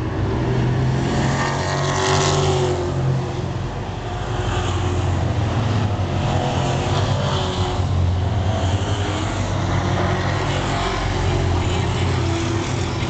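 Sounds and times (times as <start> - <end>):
race car engines and tyres droning: 0.0 - 13.0.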